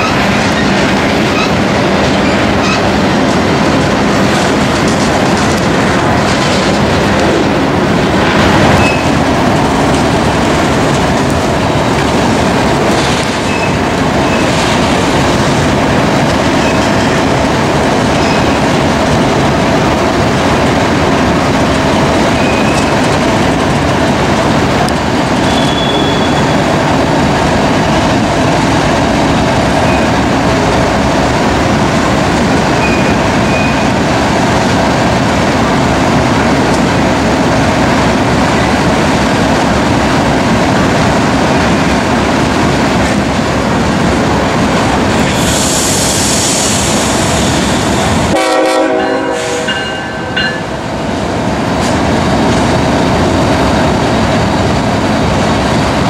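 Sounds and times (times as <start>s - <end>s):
steel wheels rumbling on rail: 0.0s - 56.0s
high wheel squeals: 25.4s - 26.6s.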